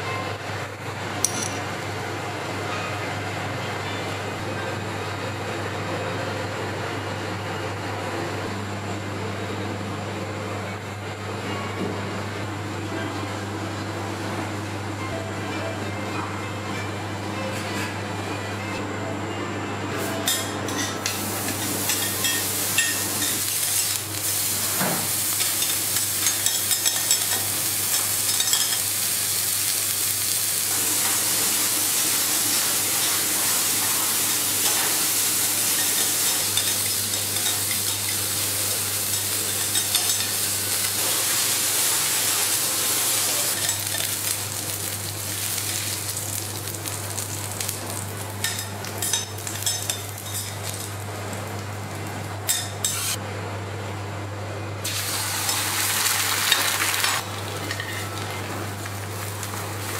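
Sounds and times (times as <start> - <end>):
meat sizzling on a griddle: 21.4 - 51.0.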